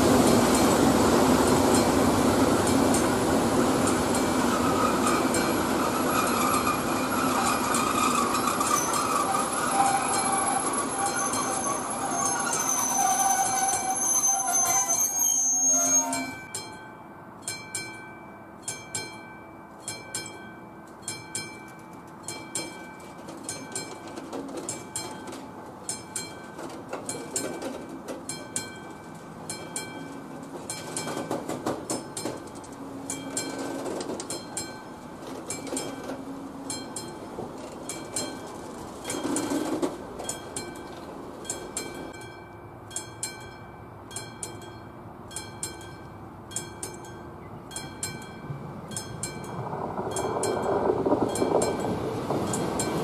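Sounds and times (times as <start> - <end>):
approaching train rumble: 0.0 - 17.9, 22.2 - 53.0
freight wagons clattering past: 21.3 - 42.4, 46.6 - 53.0.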